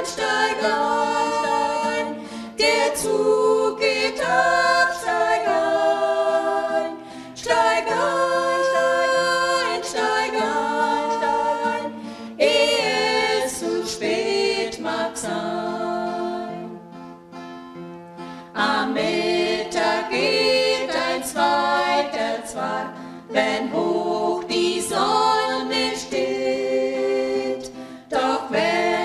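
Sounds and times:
women singing in harmony: 0.0s - 16.8s, 18.5s - 29.0s
acoustic guitar: 0.0s - 29.0s.

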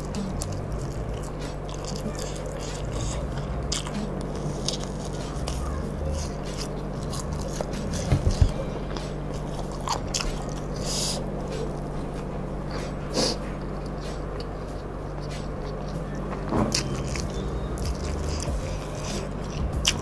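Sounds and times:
chewing fried tofu: 0.0s - 20.0s
low thumps: 3.0s - 10.5s.

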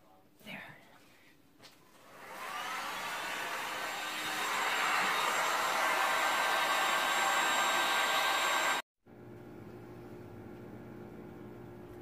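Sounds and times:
heat gun blowing: 2.0s - 8.8s.

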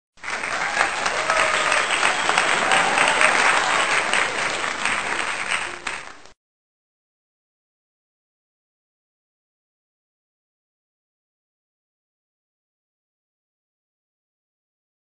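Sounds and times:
crowd applauding: 0.2s - 6.4s.

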